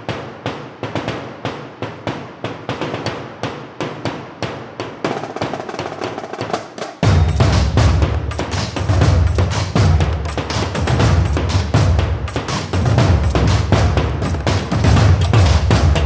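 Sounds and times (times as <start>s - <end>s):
steady percussion beat: 0.0s - 16.0s
music with heavy bass: 7.3s - 16.0s.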